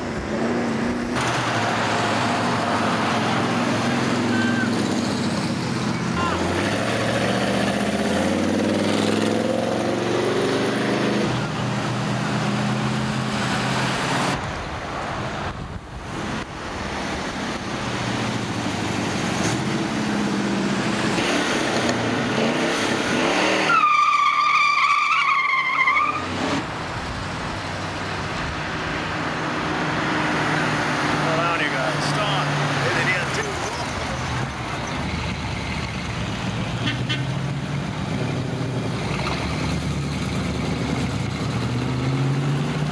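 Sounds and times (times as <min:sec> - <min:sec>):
cars driving past revving: 0:00.0 - 0:23.8, 0:25.4 - 0:42.9
tire squeal: 0:03.9 - 0:05.4, 0:23.4 - 0:26.3, 0:33.3 - 0:35.0.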